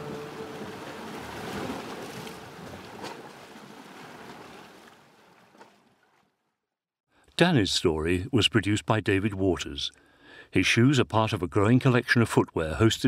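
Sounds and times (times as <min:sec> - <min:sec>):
water washing: 0:00.0 - 0:05.6.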